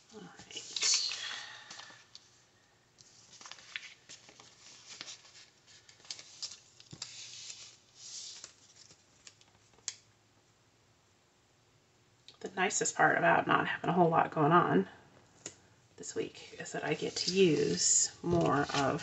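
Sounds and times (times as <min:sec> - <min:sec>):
paper sheets rustling: 0:03.0 - 0:09.9, 0:16.9 - 0:19.0.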